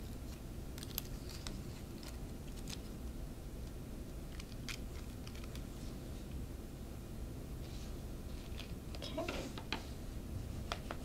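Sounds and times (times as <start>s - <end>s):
tape and paper crackling: 0.0s - 5.7s
steady low hum: 0.0s - 11.0s.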